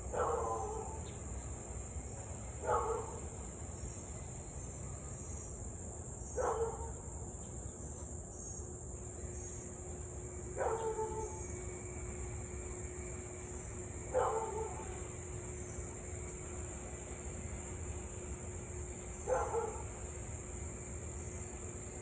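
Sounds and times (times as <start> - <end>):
high buzz of insects: 0.0 - 22.0
dog barking: 0.2 - 1.0, 2.6 - 3.2, 6.4 - 7.0, 10.6 - 11.4, 14.2 - 14.9, 19.3 - 19.9.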